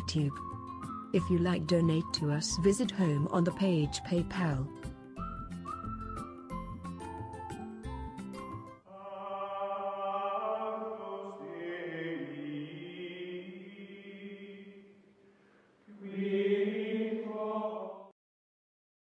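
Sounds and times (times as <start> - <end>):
choir chanting sustained chords: 8.9 - 15.0, 15.9 - 18.1.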